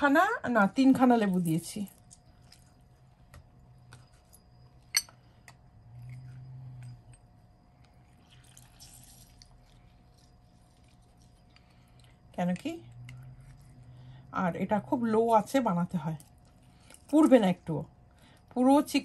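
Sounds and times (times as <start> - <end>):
juice dripping: 7.5 - 14.2.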